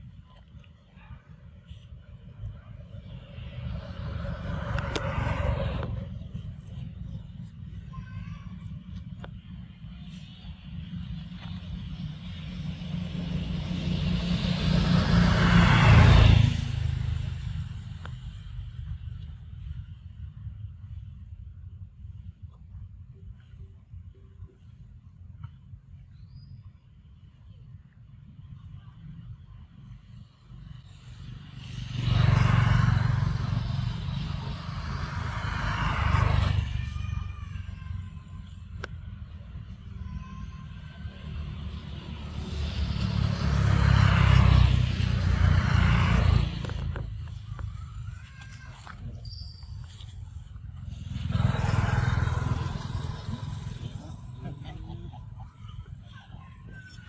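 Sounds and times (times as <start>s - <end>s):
motor vehicle passing: 1.6s - 7.9s, 9.4s - 20.0s, 30.6s - 57.0s.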